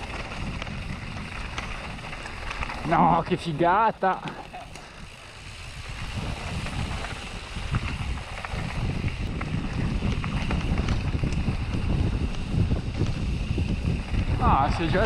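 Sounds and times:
bike tyres rumbling on gravel: 0:00.0 - 0:15.0
stones and bike rattling: 0:00.0 - 0:15.0
wind buffeting microphone: 0:00.0 - 0:15.0.

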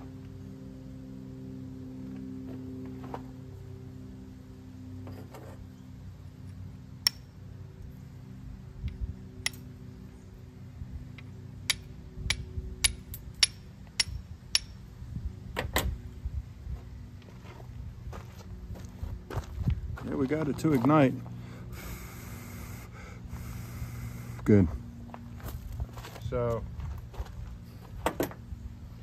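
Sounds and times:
steel striking rock clicks: 0:07.0 - 0:07.3, 0:11.6 - 0:14.8.

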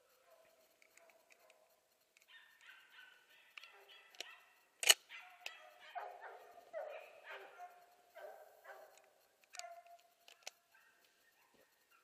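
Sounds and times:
hunting dogs baying: 0:00.0 - 0:12.0
sharp click: 0:03.6 - 0:05.6, 0:08.9 - 0:11.2.

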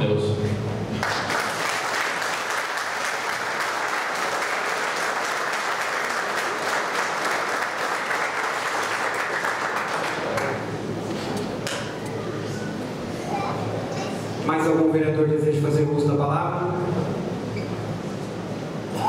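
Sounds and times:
audience applauding: 0:01.0 - 0:10.7.

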